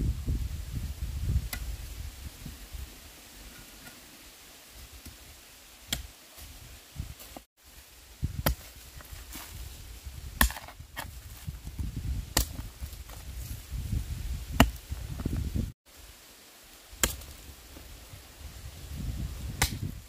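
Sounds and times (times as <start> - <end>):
low thuds and rustling: 8.2 - 15.8
hand tool chopping strikes: 10.4 - 10.8, 19.6 - 19.8.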